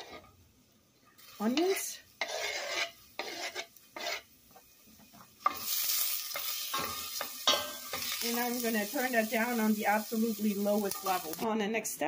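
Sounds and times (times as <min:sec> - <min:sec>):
wooden spoon scraping a pot: 0:00.0 - 0:00.3, 0:01.4 - 0:08.2
onions sizzling in oil: 0:00.0 - 0:11.6.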